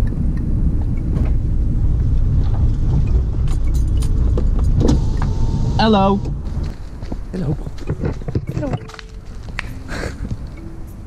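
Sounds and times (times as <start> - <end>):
car engine and road rumble: 0.0 - 11.0
knocks and rattles: 2.3 - 5.5, 6.2 - 9.2.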